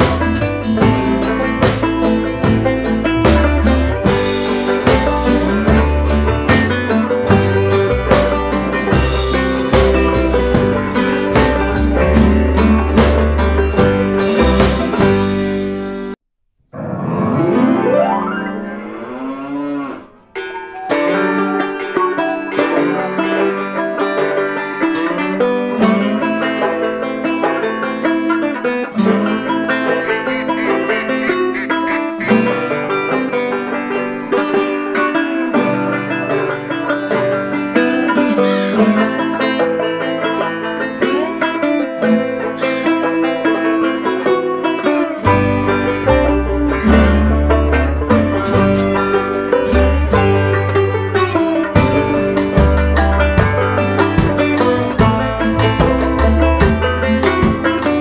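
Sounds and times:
banjo and guitar picking: 0:00.0 - 0:16.2, 0:16.8 - 0:58.0
bass: 0:00.0 - 0:18.2, 0:20.9 - 0:58.0
wavering sliding tone: 0:24.2 - 0:25.0, 0:26.3 - 0:27.0.

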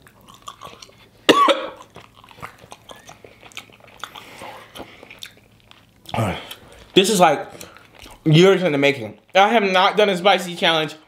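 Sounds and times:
chewing and mouth clicks: 0:00.0 - 0:08.3
man coughing: 0:01.3 - 0:01.8.

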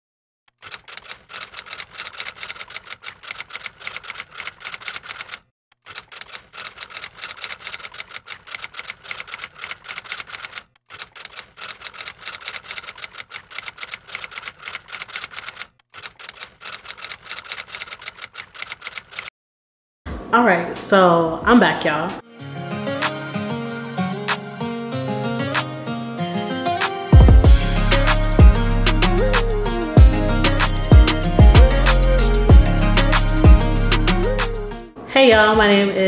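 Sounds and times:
rapid keyboard typing: 0:00.6 - 0:19.3, 0:30.6 - 0:32.3.

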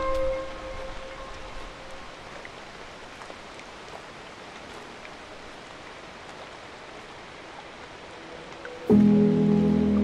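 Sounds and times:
light rain hissing: 0:00.0 - 0:10.0.

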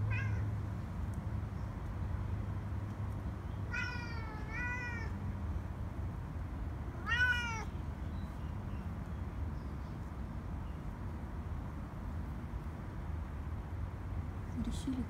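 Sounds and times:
cat meowing: 0:00.0 - 0:00.5, 0:03.7 - 0:05.2, 0:07.0 - 0:07.7.

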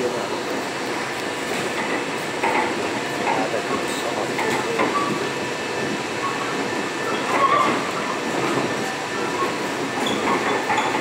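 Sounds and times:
monorail car rumbling: 0:00.0 - 0:11.0.

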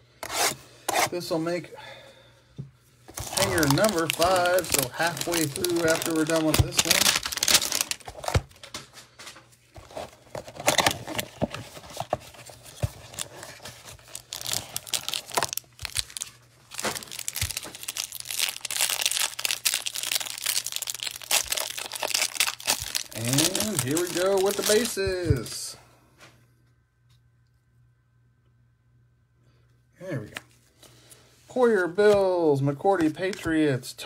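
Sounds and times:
plastic wrapper crinkling and tearing: 0:03.1 - 0:25.6.

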